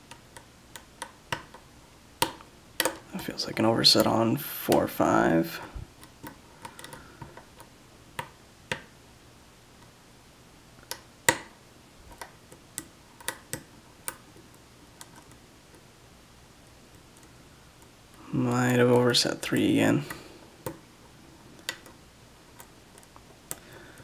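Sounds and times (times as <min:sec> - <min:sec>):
lock pick clicking pins: 0:02.2 - 0:03.1, 0:06.0 - 0:08.9.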